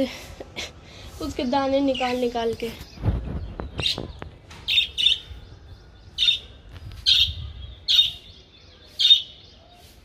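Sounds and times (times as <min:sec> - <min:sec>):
budgerigars chirping: 0:03.7 - 0:05.4, 0:06.1 - 0:09.9.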